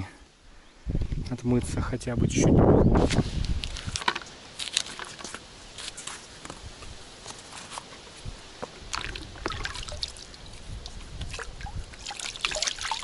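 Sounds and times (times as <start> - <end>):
water sloshing and trickling: 8.6 - 13.0.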